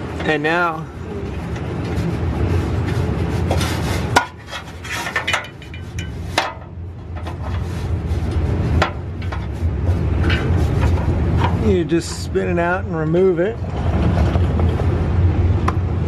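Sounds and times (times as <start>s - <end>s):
steady low hum: 0.0s - 16.0s
metal rubbing on exhaust pipe: 1.8s - 12.3s.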